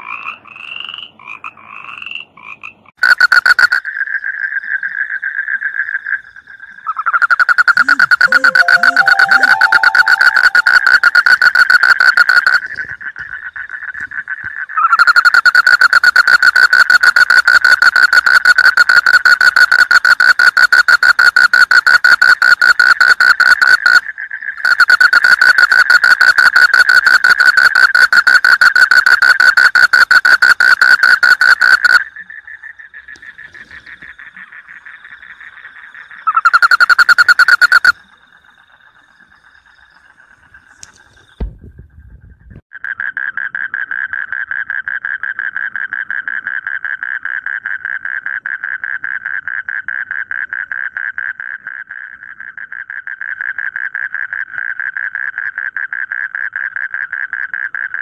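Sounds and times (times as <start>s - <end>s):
distant frogs trilling: 0.0s - 41.4s, 42.7s - 58.0s
frog trilling close by: 0.0s - 41.4s.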